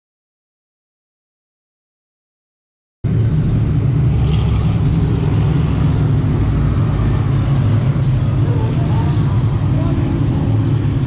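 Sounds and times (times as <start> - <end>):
race car engines droning: 3.0 - 11.0.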